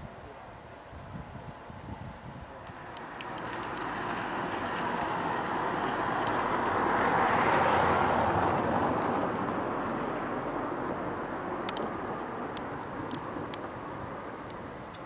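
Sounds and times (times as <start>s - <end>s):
vehicle passing by: 2.7s - 14.5s.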